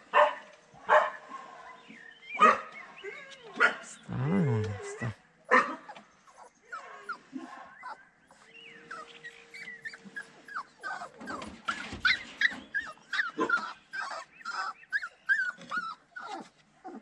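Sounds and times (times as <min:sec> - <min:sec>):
puppy whimpering: 0:03.0 - 0:05.2, 0:05.9 - 0:07.2, 0:07.8 - 0:17.0.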